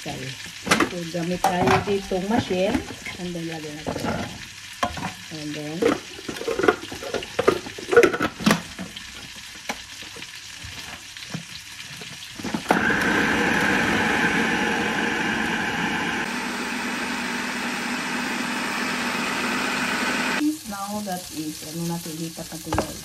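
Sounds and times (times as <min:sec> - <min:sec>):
food processor running: 0:12.4 - 0:20.4.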